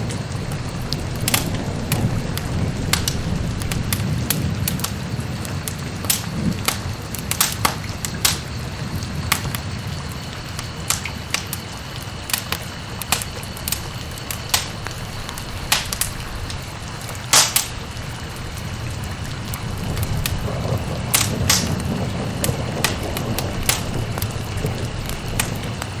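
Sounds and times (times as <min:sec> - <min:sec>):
sharp crackles and pops: 0:00.0 - 0:26.0.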